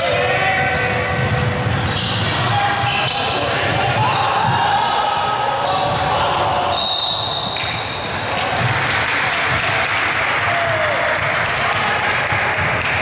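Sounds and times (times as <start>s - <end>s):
background noise: 0.0s - 13.0s
basketball bouncing on court: 0.6s - 2.5s, 12.3s - 13.0s.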